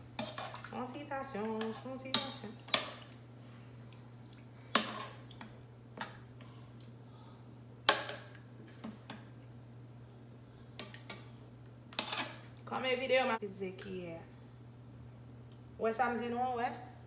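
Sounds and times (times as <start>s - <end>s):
chicken stirred in water: 0.0s - 6.9s.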